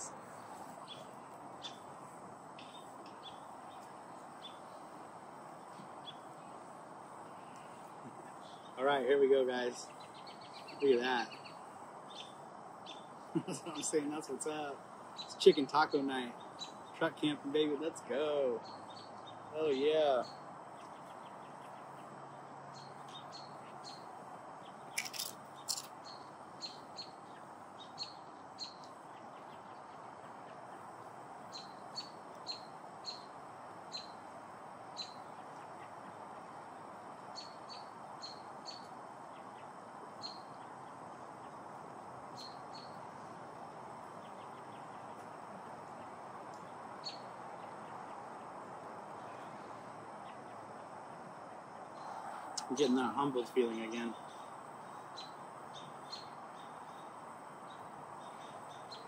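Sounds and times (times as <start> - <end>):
small bird chirping: 0.0 - 2.0, 2.6 - 4.9, 5.6 - 6.6, 9.7 - 17.7, 18.5 - 30.9, 31.5 - 34.3, 34.9 - 36.2, 37.3 - 41.6, 42.3 - 43.1, 45.9 - 48.5, 51.9 - 59.0
faint steady hiss: 0.0 - 59.0.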